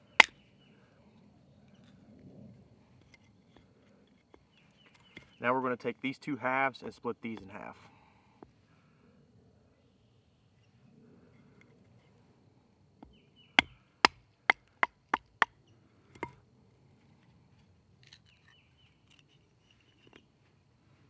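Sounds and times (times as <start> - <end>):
wooden baton striking knife spine: 0.2 - 0.4.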